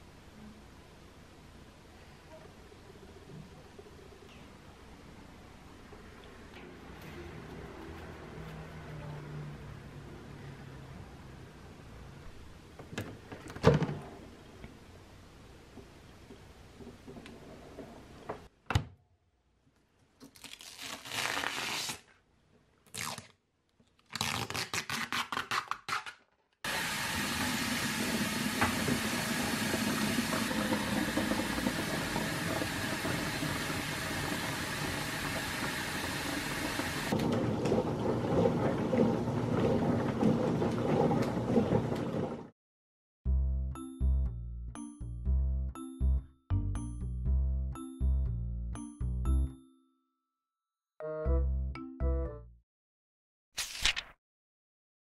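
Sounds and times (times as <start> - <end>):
dishwasher pulses: 26.8 - 42.5.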